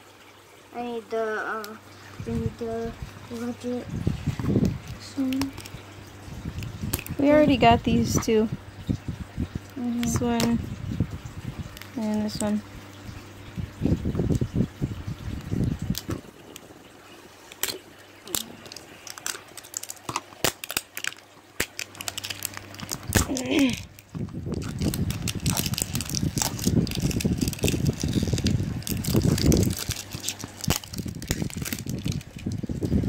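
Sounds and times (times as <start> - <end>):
plastic packaging crinkling: 3.0 - 8.3, 17.4 - 33.0.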